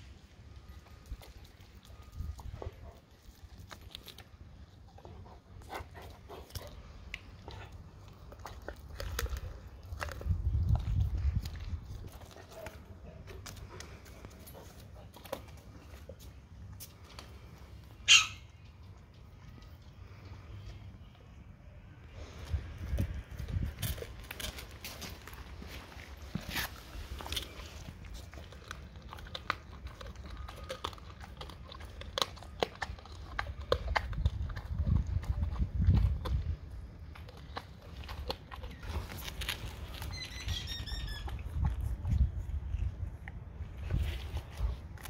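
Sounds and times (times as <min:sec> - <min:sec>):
teeth crunching on fish head: 0:00.6 - 0:05.0, 0:06.2 - 0:16.2, 0:22.8 - 0:25.6, 0:26.3 - 0:45.0
dog chewing fish head: 0:00.6 - 0:16.2, 0:22.8 - 0:45.0.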